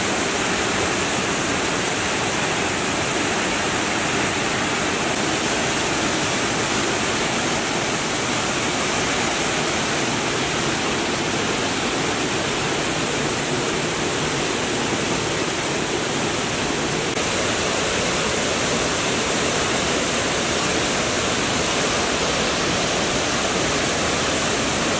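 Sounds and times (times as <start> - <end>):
waterfall rushing: 0.0 - 24.9.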